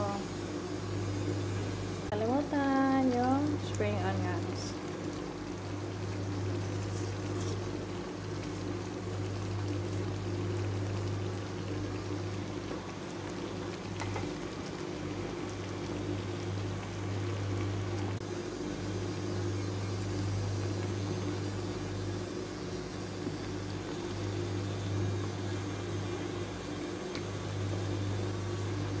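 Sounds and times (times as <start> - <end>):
stew bubbling and popping: 2.9 - 18.2.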